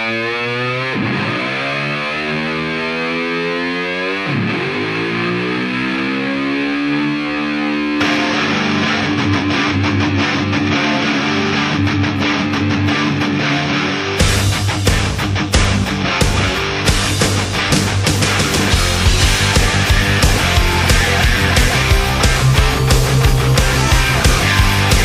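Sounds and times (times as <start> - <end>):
distorted electric guitar gliding notes: 0.0 - 25.0
full rock band with drums: 14.0 - 25.0.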